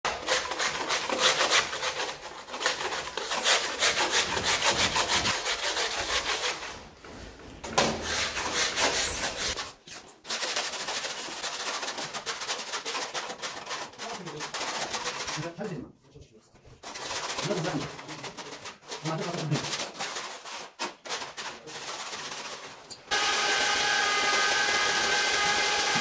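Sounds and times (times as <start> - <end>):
hand scraper rasping: 0.1 - 6.8, 7.8 - 15.5, 16.8 - 26.0.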